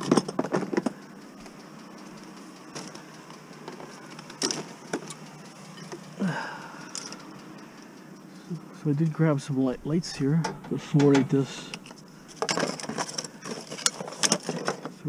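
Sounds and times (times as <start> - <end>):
plastic objects clattering: 0.0 - 1.0, 3.7 - 5.1, 11.8 - 15.0
steady background noise: 0.0 - 15.0.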